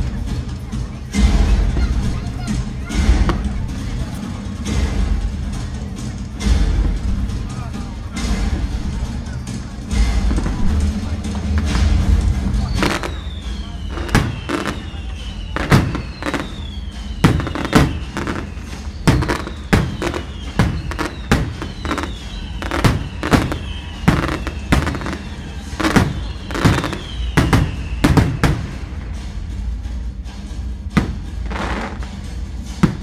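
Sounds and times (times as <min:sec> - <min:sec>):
fireworks shells bursting: 0:12.8 - 0:28.8.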